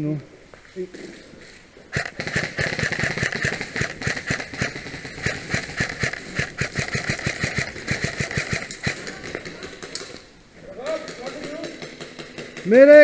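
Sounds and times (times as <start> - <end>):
steady high buzz: 1.9 - 9.2
airsoft guns firing rapidly: 1.9 - 13.0.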